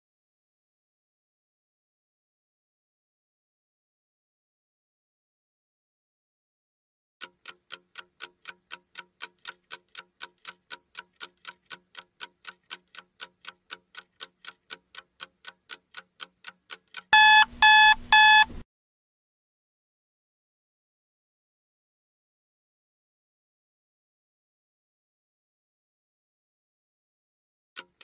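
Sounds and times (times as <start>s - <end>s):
clock ticking: 7.2s - 18.6s, 27.8s - 28.0s
loud electronic alarm beeps: 17.2s - 18.5s.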